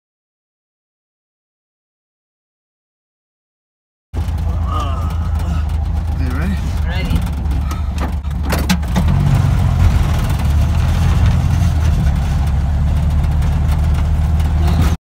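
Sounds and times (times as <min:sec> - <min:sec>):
car engine running under load: 0:04.2 - 0:15.0.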